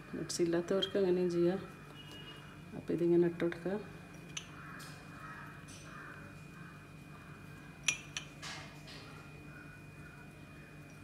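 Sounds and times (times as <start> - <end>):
ceramic bowl clinking: 4.2 - 4.6, 7.8 - 8.5.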